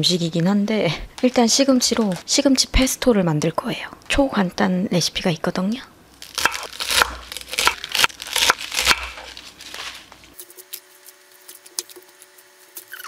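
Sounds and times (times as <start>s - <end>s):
knife chopping on wooden board: 6.4s - 9.9s.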